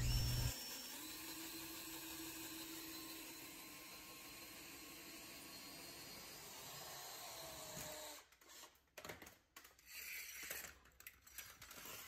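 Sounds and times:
cordless drill whirring: 0.0s - 8.8s.

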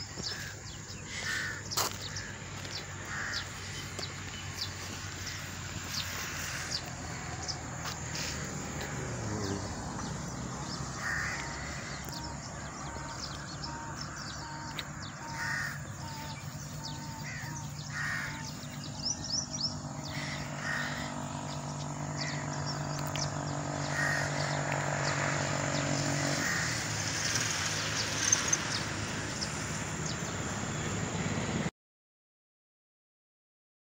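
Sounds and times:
steady low hum: 0.0s - 25.8s
crows cawing: 0.1s - 22.9s, 23.8s - 27.0s.

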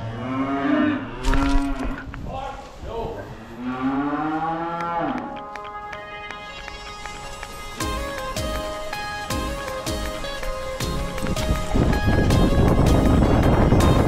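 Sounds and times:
cattle mooing: 0.0s - 1.8s, 3.4s - 5.4s.

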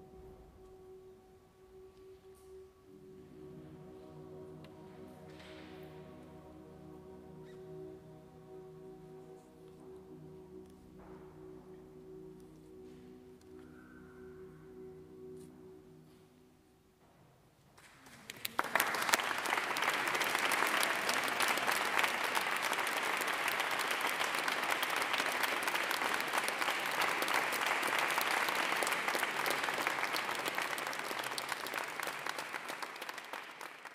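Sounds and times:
audience applause: 18.0s - 33.9s.

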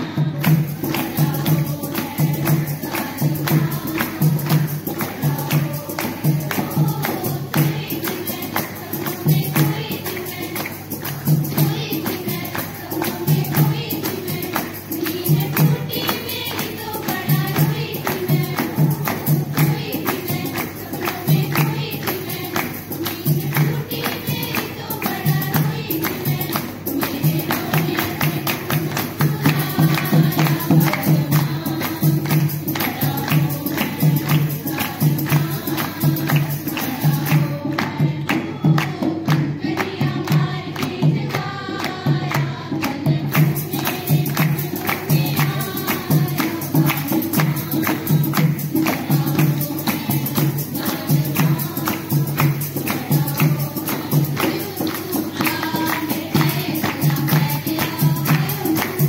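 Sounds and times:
hand claps: 0.0s - 59.0s
women singing together: 0.0s - 59.0s.

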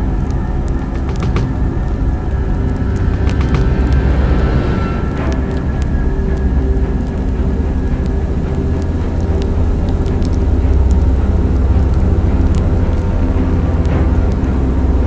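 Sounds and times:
faint clicks and crackles: 0.0s - 15.0s
low engine drone: 0.0s - 15.0s.

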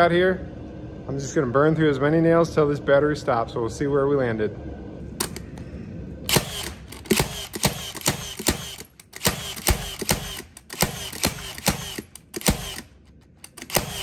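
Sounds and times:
nail gun firing: 6.3s - 14.0s.

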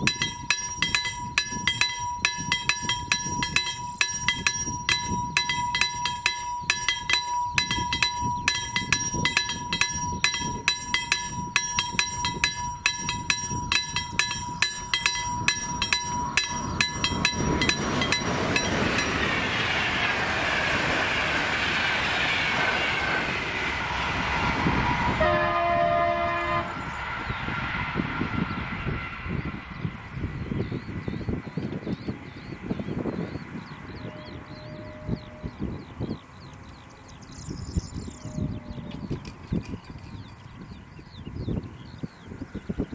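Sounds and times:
level crossing warning bell: 0.0s - 19.7s
train rushing rumble: 0.0s - 37.3s
train horn blast: 24.4s - 27.3s, 34.0s - 35.6s, 38.2s - 39.1s.

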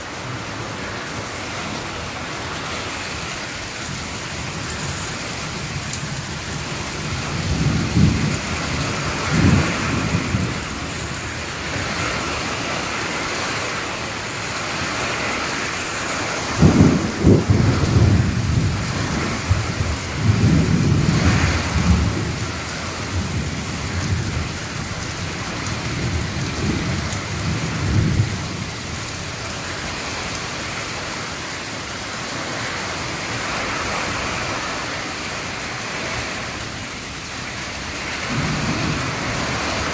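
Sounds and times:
heavy rain falling: 0.0s - 39.9s
rolling thunder: 5.4s - 10.9s, 16.4s - 29.2s, 37.9s - 39.9s.

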